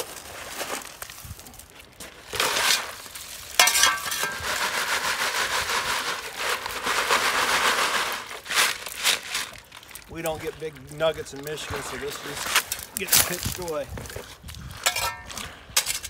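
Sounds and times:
wet stones washing and rattling: 0:00.0 - 0:16.0
gravel tipped onto screen: 0:08.8 - 0:14.3.

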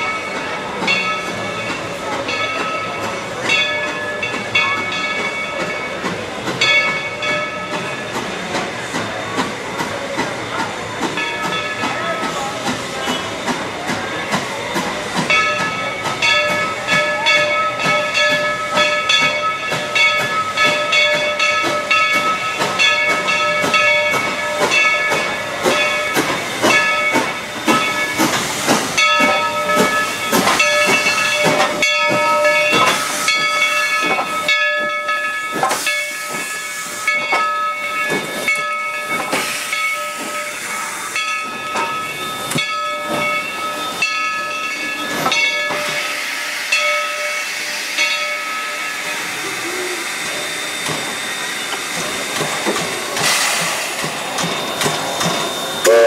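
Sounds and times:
steam hissing: 0:00.0 - 0:56.0
short steam puffs: 0:39.1 - 0:41.2, 0:45.1 - 0:56.0.

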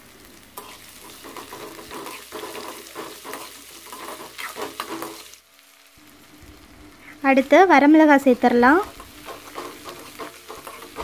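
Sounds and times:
onions sizzling in oil: 0:00.0 - 0:11.0
metal ladle scraping pan: 0:08.9 - 0:11.0.

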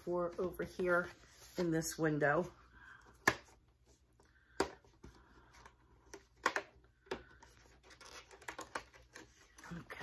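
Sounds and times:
cardboard rustling scrapes: 0:00.7 - 0:02.0.

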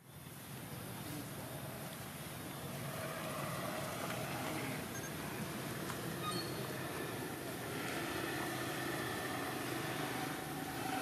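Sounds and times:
low background rumble and hiss: 0:00.0 - 0:11.0.

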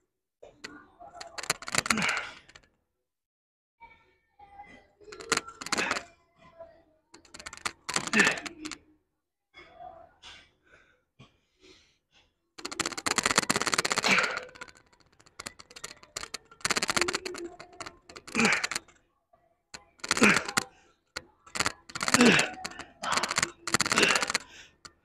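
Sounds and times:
rapid rattling clicks: 0:01.1 - 0:02.7, 0:05.1 - 0:06.1, 0:07.2 - 0:08.8, 0:12.6 - 0:19.0, 0:19.8 - 0:25.0
strained grunts: 0:01.4 - 0:02.6, 0:12.7 - 0:18.9, 0:20.0 - 0:20.7, 0:21.6 - 0:25.0.

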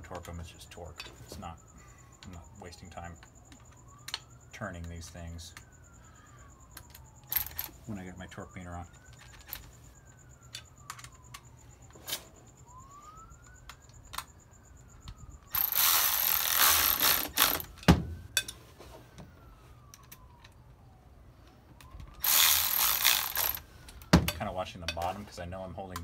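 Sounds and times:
distant siren: 0:00.0 - 0:26.0
electric ratchet running: 0:15.5 - 0:17.7, 0:22.2 - 0:23.6.

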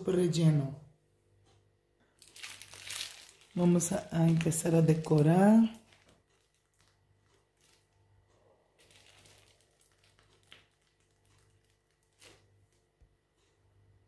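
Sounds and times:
plastic piping bag rustling: 0:02.2 - 0:13.2.

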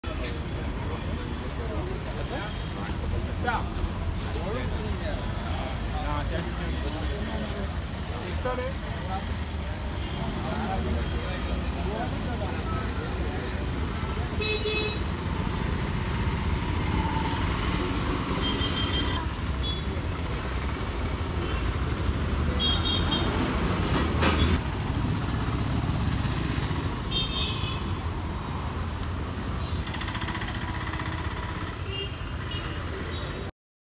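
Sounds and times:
vehicle engines in traffic: 0:00.0 - 0:33.5
bus passing: 0:15.1 - 0:27.1.

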